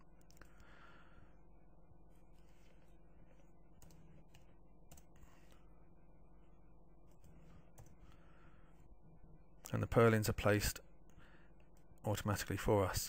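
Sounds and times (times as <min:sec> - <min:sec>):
low room hum: 0:00.0 - 0:13.0
computer mouse clicks: 0:03.8 - 0:05.5.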